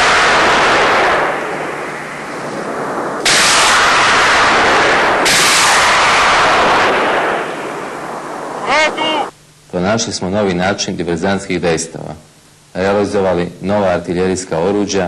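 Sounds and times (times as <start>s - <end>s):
rocket launches: 0.0s - 9.3s.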